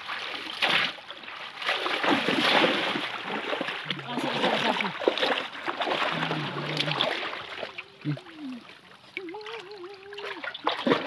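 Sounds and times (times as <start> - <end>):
muddy water splashing: 0.0 - 11.0
voice with long wavering notes: 6.1 - 10.6.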